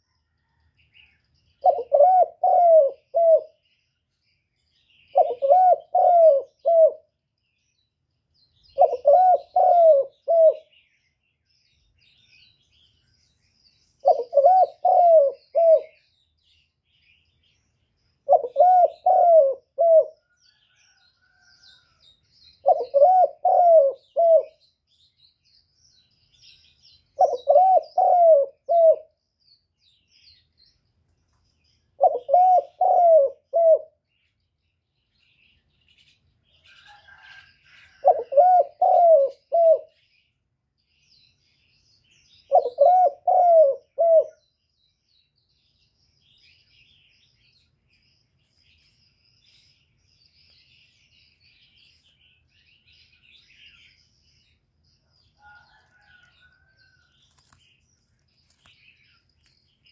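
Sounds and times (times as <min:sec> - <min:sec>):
small birds chirping: 0:00.0 - 0:59.9
dove cooing: 0:01.6 - 0:03.6, 0:05.1 - 0:07.1, 0:08.8 - 0:10.7, 0:14.0 - 0:16.0, 0:18.2 - 0:20.4, 0:22.6 - 0:24.6, 0:27.2 - 0:29.1, 0:32.0 - 0:34.0, 0:36.9 - 0:40.0, 0:42.5 - 0:44.4.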